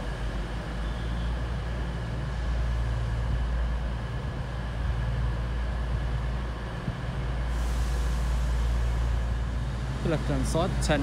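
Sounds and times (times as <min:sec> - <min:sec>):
diesel train engines idling: 0:00.0 - 0:11.0.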